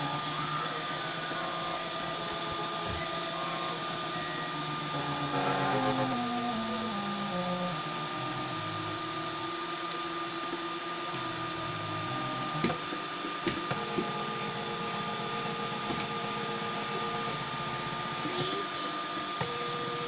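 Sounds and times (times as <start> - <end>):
stepper motors singing: 0.0 - 9.6
constant high whine: 0.0 - 20.0.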